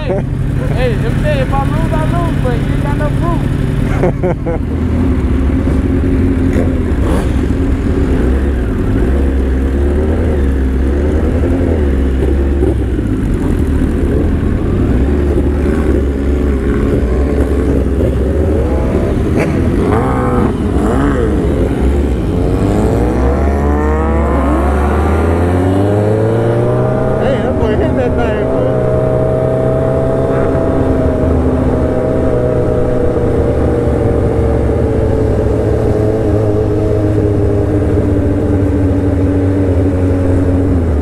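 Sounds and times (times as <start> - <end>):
motorcycle engines revving: 0.0 - 41.0.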